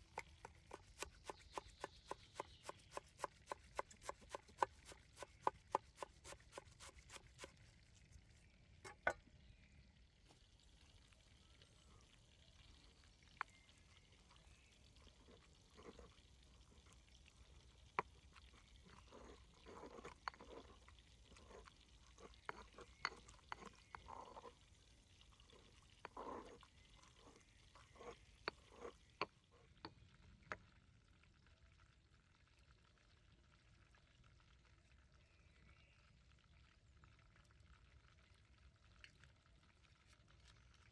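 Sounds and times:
knife chopping on wooden board: 0.1s - 7.5s.

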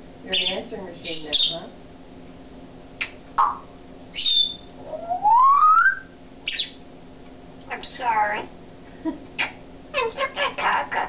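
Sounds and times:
parrot rising whistle: 4.1s - 6.8s
parrot chirps and clicks: 9.4s - 11.0s.

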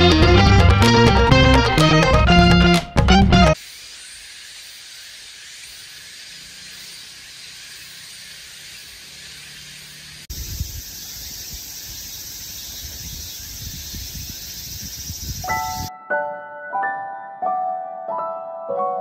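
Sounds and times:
outdoor ambient hiss: 3.6s - 15.9s.

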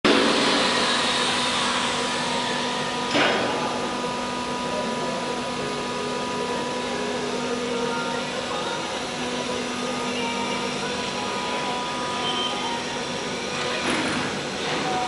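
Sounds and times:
machine hum: 0.0s - 15.0s
wood router machine whine: 0.1s - 15.0s.

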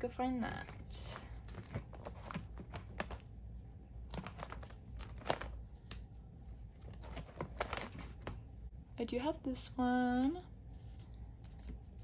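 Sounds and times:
plastic sleeve pages crinkling: 0.5s - 3.3s, 4.0s - 8.5s.

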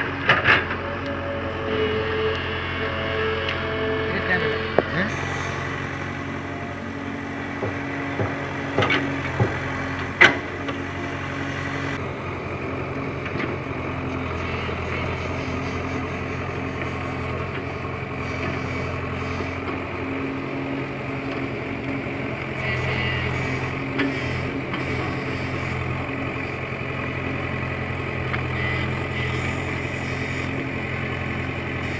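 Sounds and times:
excavator diesel engine running: 0.0s - 31.9s
sharp knocks: 7.5s - 10.5s.

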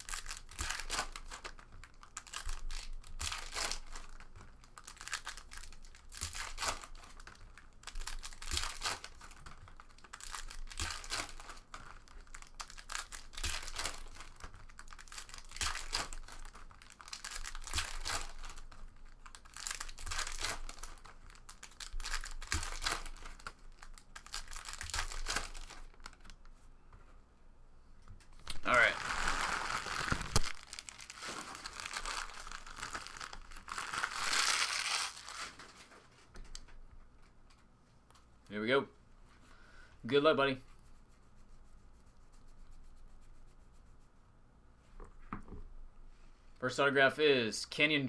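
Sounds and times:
card pack wrappers crinkling and tearing: 0.0s - 26.4s, 28.4s - 36.6s.

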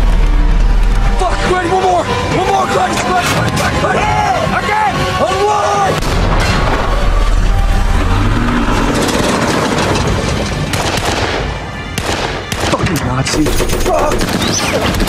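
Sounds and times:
dramatic music: 0.0s - 15.0s
deep rumble: 6.0s - 11.4s
gunfire: 10.6s - 15.0s.

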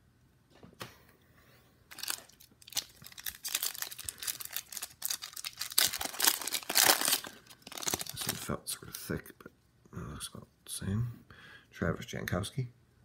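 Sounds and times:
plastic wrapper tearing and crinkling: 1.9s - 8.5s.

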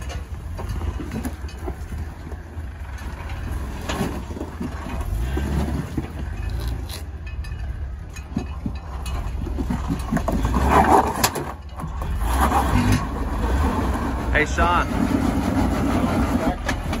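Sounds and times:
engine running at low revs: 0.0s - 11.3s
tyres grinding over rock: 0.0s - 17.0s.

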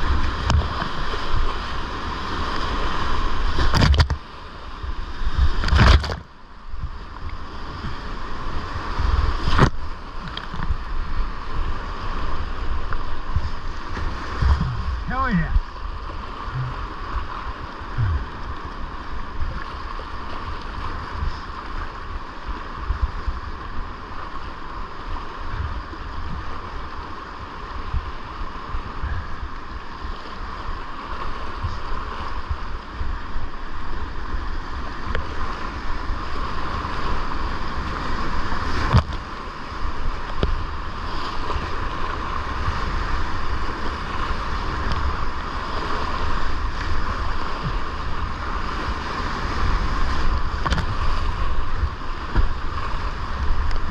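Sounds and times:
whitewater rushing: 0.0s - 53.9s
wind buffeting microphone: 4.9s - 23.8s, 39.9s - 53.9s.

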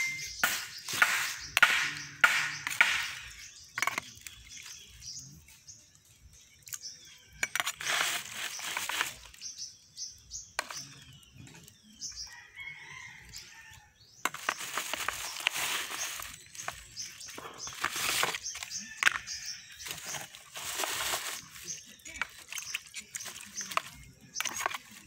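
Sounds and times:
birds chirping: 0.0s - 25.0s
rooster crowing: 12.3s - 14.0s.

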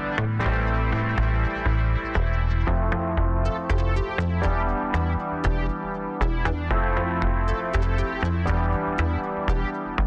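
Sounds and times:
electronic music with beat: 0.0s - 10.0s.

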